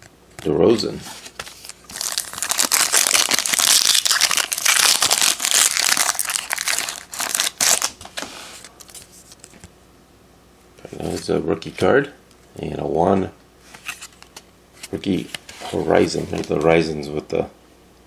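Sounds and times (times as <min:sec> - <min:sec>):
foil wrapper crinkling: 0:01.2 - 0:09.6.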